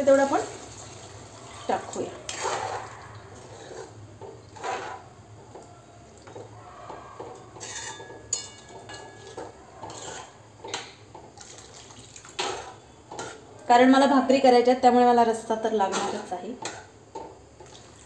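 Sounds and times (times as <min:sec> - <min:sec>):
spoon stirring and scraping pan: 0:01.7 - 0:13.6, 0:15.8 - 0:17.9.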